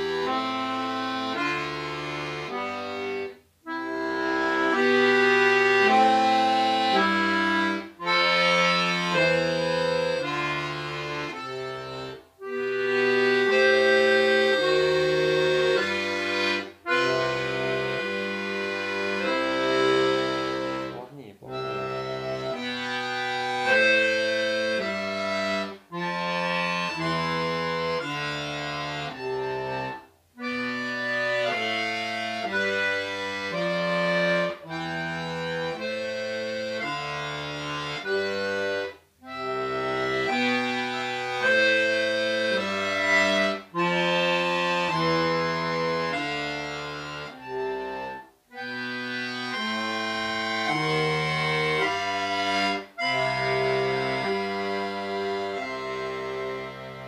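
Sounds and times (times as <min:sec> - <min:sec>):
button accordion playing chords: 0:00.0 - 0:57.0.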